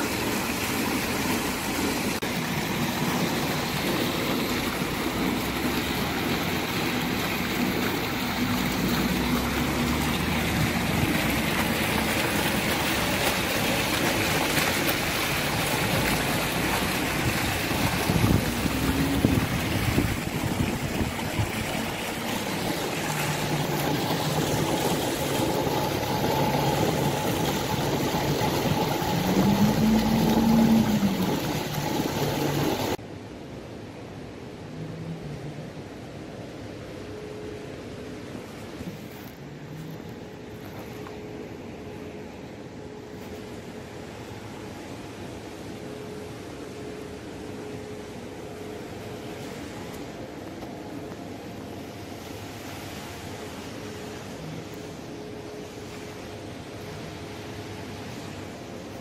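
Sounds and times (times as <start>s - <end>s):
fountain water splashing: 0.0s - 33.0s
passing traffic hum: 1.4s - 33.0s.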